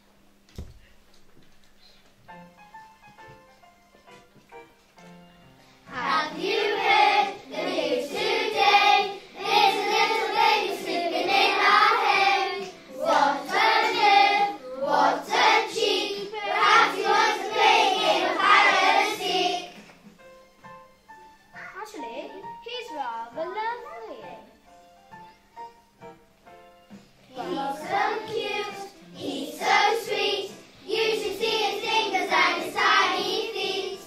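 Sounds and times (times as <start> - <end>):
musical backing: 0.0 - 34.0
children singing: 5.9 - 19.8, 27.3 - 34.0.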